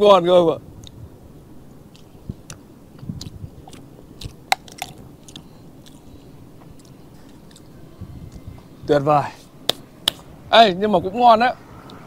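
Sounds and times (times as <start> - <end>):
wet mouth clicks: 1.9 - 6.1, 6.8 - 7.7
person chewing: 1.9 - 7.8.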